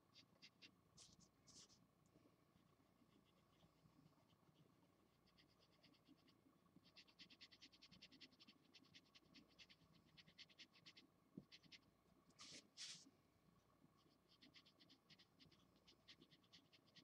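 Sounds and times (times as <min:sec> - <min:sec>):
felt-tip marker scratching on paper: 0:00.1 - 0:01.8, 0:05.2 - 0:11.8, 0:12.4 - 0:13.1, 0:14.0 - 0:17.0.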